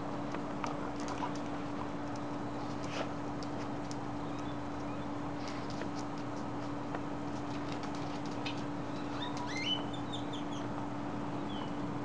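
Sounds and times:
steady hum: 0:00.0 - 0:12.0
dogs scuffling on concrete: 0:00.7 - 0:04.1, 0:04.7 - 0:09.6
bird chirping: 0:08.8 - 0:10.7, 0:11.4 - 0:11.8.

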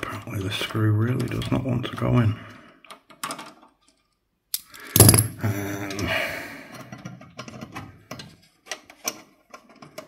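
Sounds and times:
metal clatter: 0:05.0 - 0:05.4.

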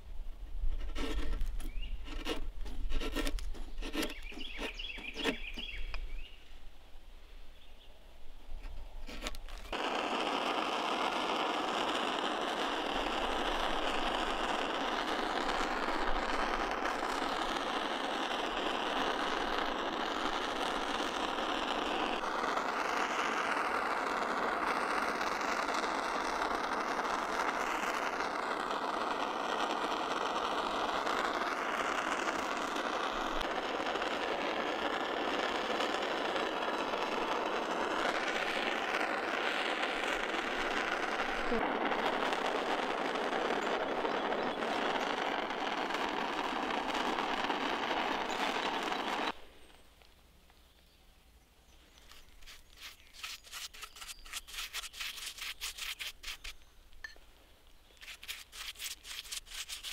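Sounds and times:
chisel scraping wood: 0:00.7 - 0:05.8, 0:09.0 - 0:09.8, 0:52.1 - 0:56.6, 0:58.0 - 0:59.9
propane torch hissing: 0:09.2 - 0:49.5.

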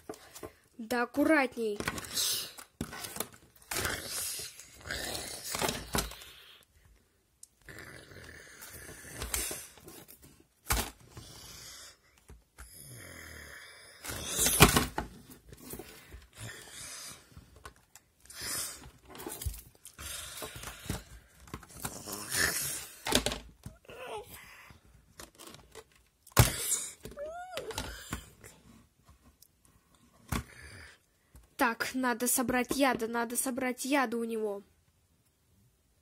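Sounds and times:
person growling and hissing: 0:03.7 - 0:05.7, 0:07.6 - 0:09.7, 0:12.7 - 0:14.6, 0:21.9 - 0:23.0
plastic toys knocking together: 0:14.1 - 0:15.2, 0:22.9 - 0:23.8, 0:25.2 - 0:28.4.

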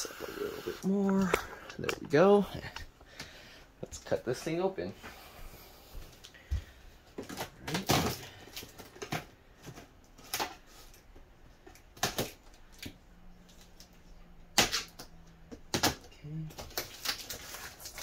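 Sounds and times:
knife cutting packing tape: 0:14.6 - 0:15.1.

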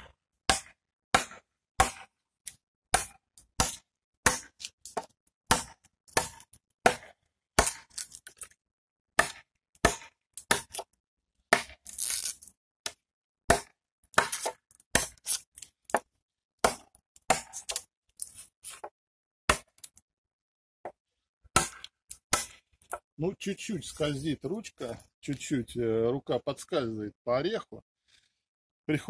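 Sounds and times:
knife chopping a branch: 0:00.0 - 0:08.5, 0:09.2 - 0:12.1, 0:12.8 - 0:18.9, 0:19.5 - 0:20.0, 0:20.9 - 0:23.0.

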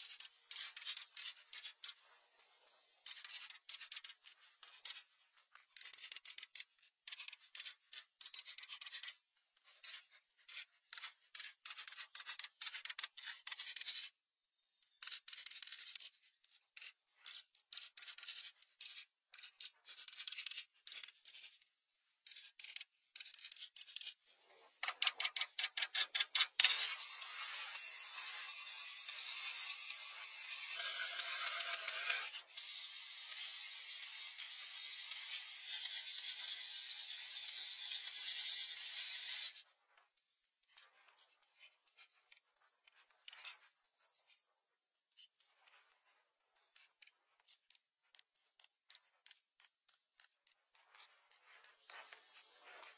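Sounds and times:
crayon scratching on paper: 0:00.0 - 0:02.0, 0:03.0 - 0:05.1, 0:05.7 - 0:14.1, 0:15.0 - 0:21.6, 0:45.1 - 0:52.9.

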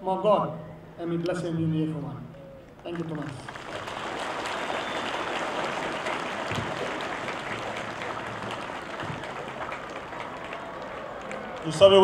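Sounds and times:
crowd applauding: 0:02.8 - 0:12.0.

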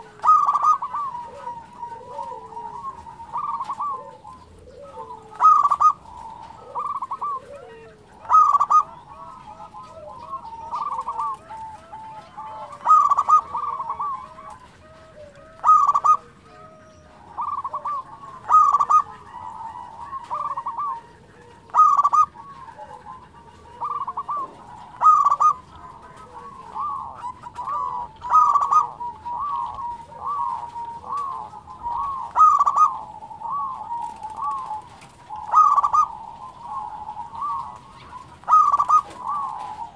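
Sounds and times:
dove cooing: 0:00.0 - 0:39.9.

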